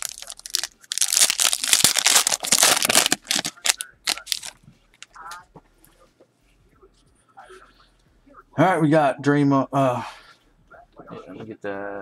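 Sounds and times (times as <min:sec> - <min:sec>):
foil wrapper ripping: 0:00.0 - 0:04.6
wrapper crinkling: 0:00.0 - 0:05.2.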